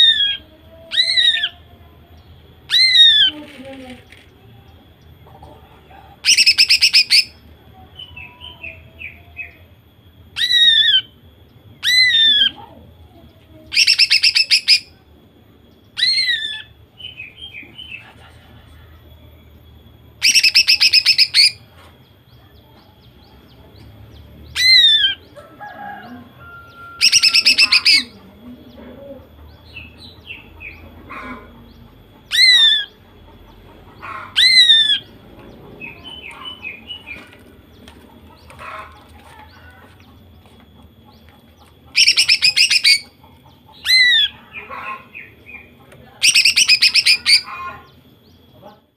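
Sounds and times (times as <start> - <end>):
bird twittering chatter: 2.6 - 4.4, 6.2 - 7.4, 13.7 - 15.0, 20.2 - 21.8, 27.0 - 28.1, 29.6 - 48.5.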